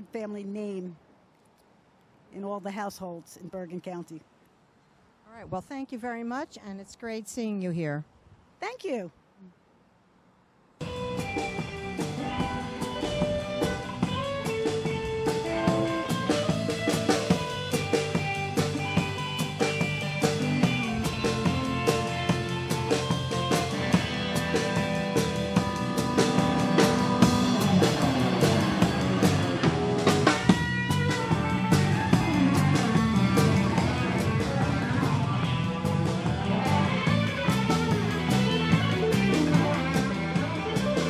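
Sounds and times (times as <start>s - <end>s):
drum and cymbal strikes: 10.8s - 41.0s
electric guitar: 10.8s - 41.0s
live band through speakers: 10.8s - 41.0s.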